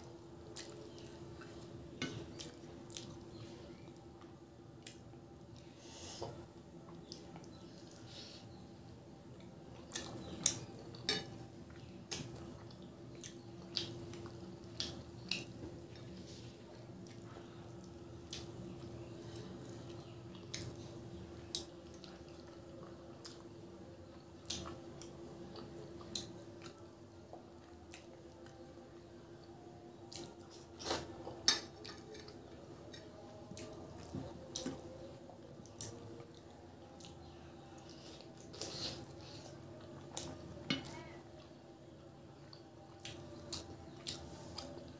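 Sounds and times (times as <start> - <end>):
faint hum: 0.0 - 44.9
chewing and mouth smacks: 0.5 - 3.4, 4.8 - 5.7, 11.7 - 16.1, 17.0 - 20.8, 24.4 - 28.6, 30.1 - 40.5, 42.5 - 44.9.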